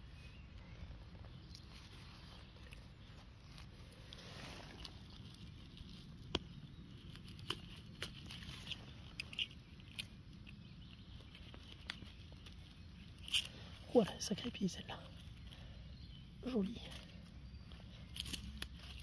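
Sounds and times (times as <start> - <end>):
knife clicking in leaf litter: 18.0 - 19.0.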